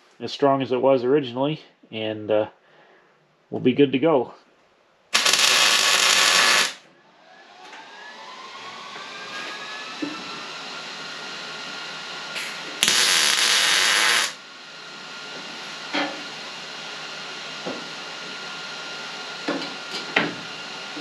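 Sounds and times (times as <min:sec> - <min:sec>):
welding arc crackling: 0:05.1 - 0:06.8, 0:12.8 - 0:14.4
faint whine rising in pitch: 0:05.5 - 0:15.3.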